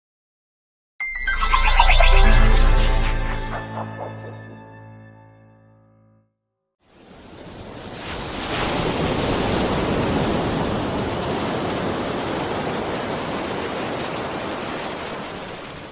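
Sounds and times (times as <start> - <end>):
waves breaking on a beach: 6.8 - 15.9.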